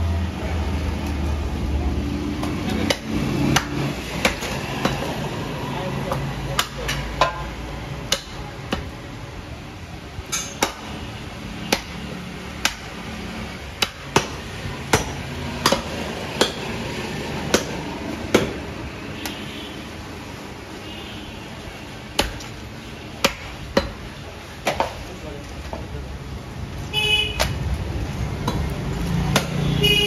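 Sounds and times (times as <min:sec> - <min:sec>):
cleaver chopping on wooden block: 0:02.4 - 0:05.1, 0:06.1 - 0:09.0, 0:10.3 - 0:11.0, 0:11.6 - 0:12.0, 0:12.6 - 0:12.9, 0:13.8 - 0:16.8, 0:17.4 - 0:18.6, 0:22.2 - 0:22.5, 0:23.2 - 0:24.0, 0:29.3 - 0:29.6.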